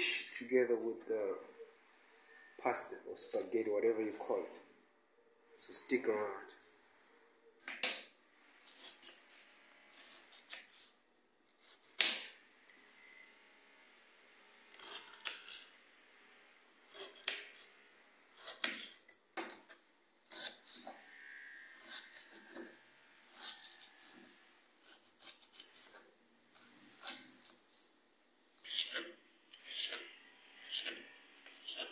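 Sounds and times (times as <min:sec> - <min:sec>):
knife slicing onion on board: 0:18.3 - 0:19.7, 0:28.6 - 0:31.9.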